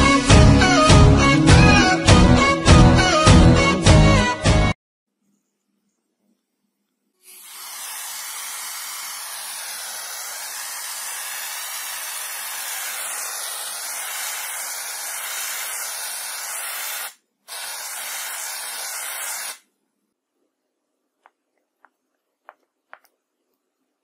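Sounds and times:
aerosol can spraying hiss: 7.2 - 19.6.

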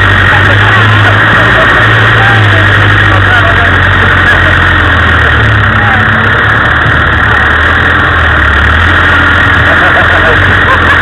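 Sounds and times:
off-road vehicle engine: 0.0 - 11.0.

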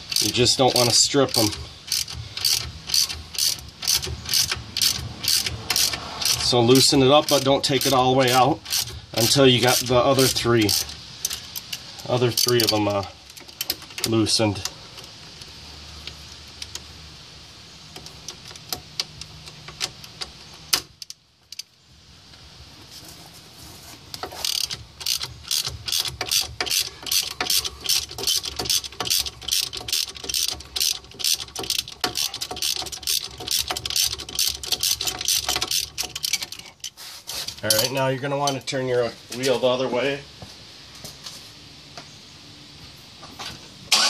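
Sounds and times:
ratchet wrench clicking rapidly: 0.0 - 14.4, 24.3 - 37.0.

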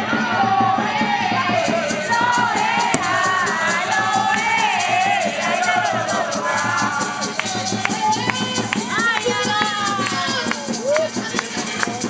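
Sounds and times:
crowd noise: 0.0 - 12.0
voices singing together: 0.0 - 12.0
fast drumming: 0.6 - 12.0.

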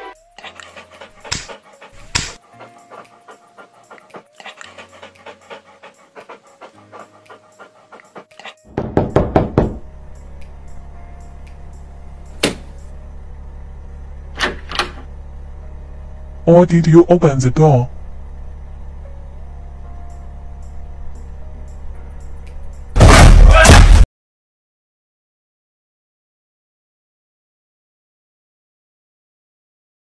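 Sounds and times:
dog panting: 0.3 - 8.6
steady low hum: 9.7 - 23.2.

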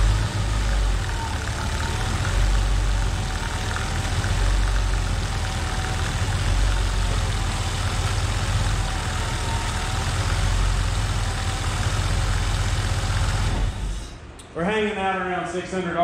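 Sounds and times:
car engine idling: 0.0 - 14.2.

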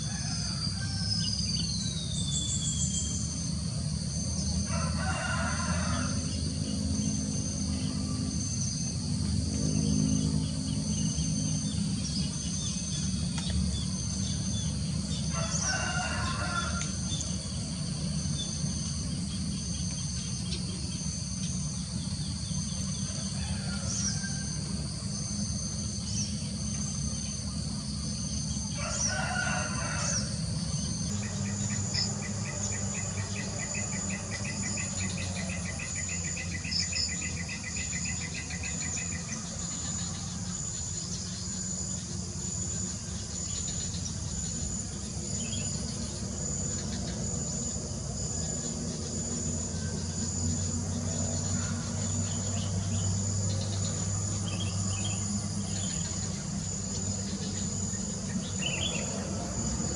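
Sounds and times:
rooster crowing: 0.0 - 1.9, 4.4 - 6.7, 15.1 - 17.3, 22.9 - 25.0, 28.5 - 40.7, 49.7 - 55.6
insects chirping: 0.0 - 59.9.

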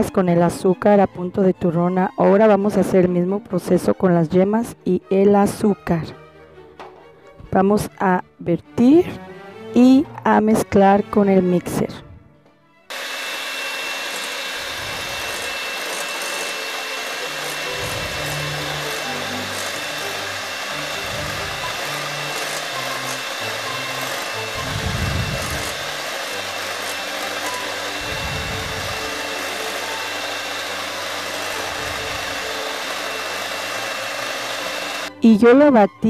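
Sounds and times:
electric hand mixer whirring: 12.9 - 35.2.

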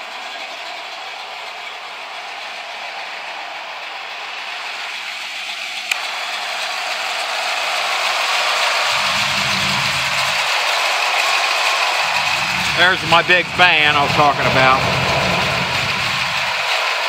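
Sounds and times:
car engine idling: 8.8 - 10.8, 11.8 - 16.8.

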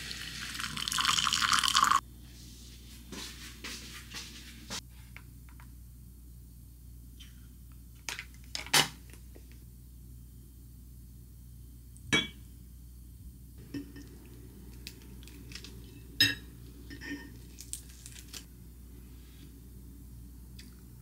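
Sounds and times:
glass clink: 16.2 - 17.4.

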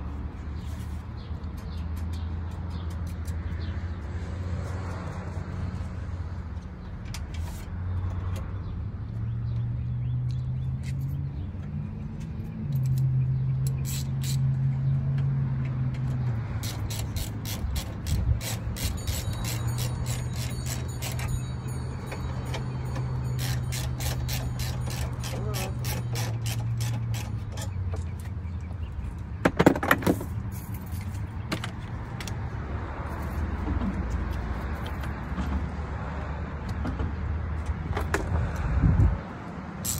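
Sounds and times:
socket ratchet clicking: 16.6 - 21.3, 22.5 - 27.8.

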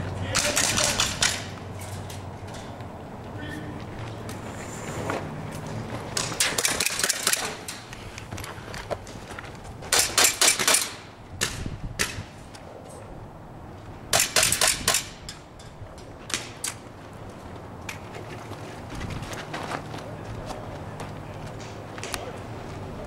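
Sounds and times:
airsoft guns firing bursts: 0.3 - 1.5, 6.4 - 7.7, 9.9 - 11.6.

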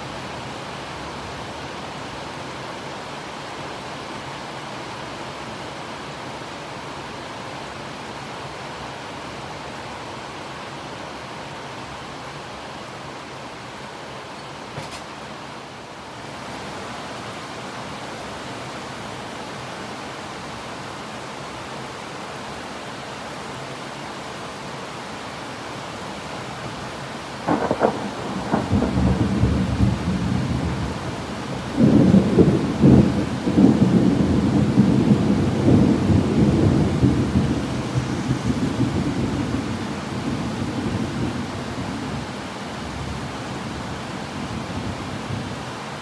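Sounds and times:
heavy rain: 0.0 - 46.0
thunder cracking and rumbling: 27.5 - 31.0, 31.6 - 41.0.

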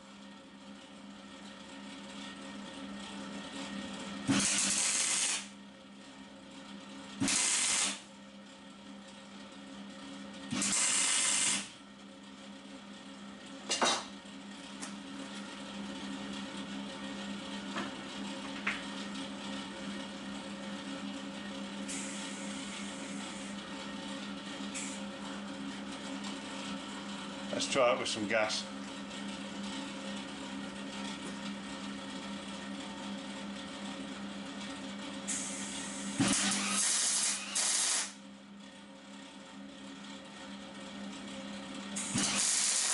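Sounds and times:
low electrical hum: 0.0 - 42.9
welding torch hissing: 4.3 - 5.5, 7.2 - 8.0, 10.5 - 11.7, 21.9 - 23.5, 35.3 - 38.2, 42.0 - 42.9
high gas hiss: 35.3 - 38.1, 42.1 - 42.9.

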